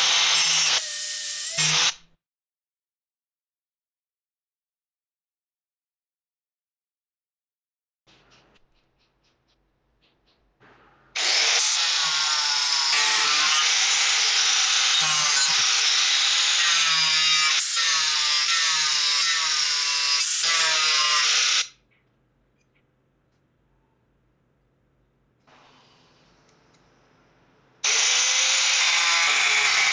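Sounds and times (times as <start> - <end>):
angle grinder cutting wood: 0.0 - 2.0, 11.2 - 21.7, 27.8 - 29.9
sharp knocks: 10.1 - 11.2.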